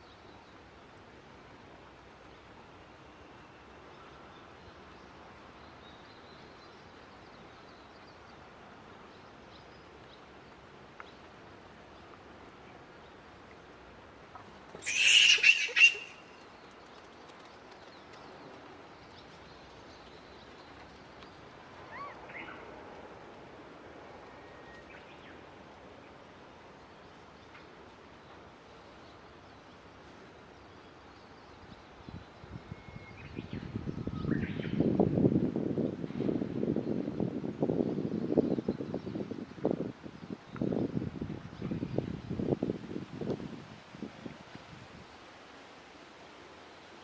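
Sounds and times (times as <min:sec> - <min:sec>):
animal high-pitched calls: 0:14.8 - 0:16.3, 0:21.8 - 0:22.6
faint wavering animal calls: 0:14.8 - 0:16.3, 0:21.8 - 0:22.7.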